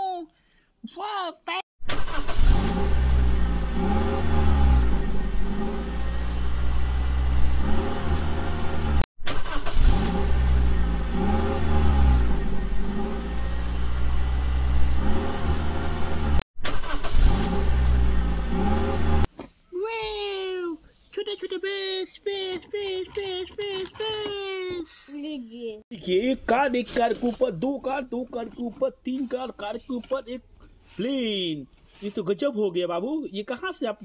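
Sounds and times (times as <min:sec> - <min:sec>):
car engine revving: 0:01.9 - 0:19.3.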